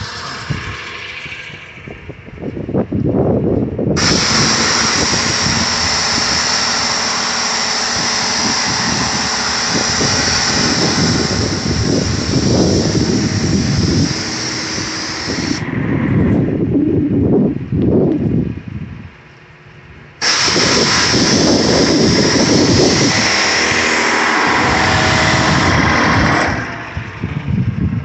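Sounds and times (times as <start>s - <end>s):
water jet hissing on concrete: 0.0s - 1.2s, 4.0s - 15.6s, 20.2s - 27.1s
electric pump running: 0.0s - 2.5s, 3.9s - 16.7s, 20.2s - 27.6s.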